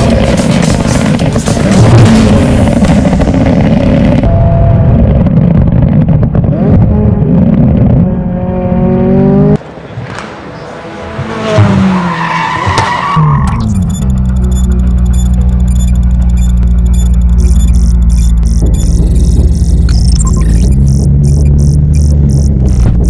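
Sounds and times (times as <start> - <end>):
car engine droning through exhaust: 14.0 - 23.0.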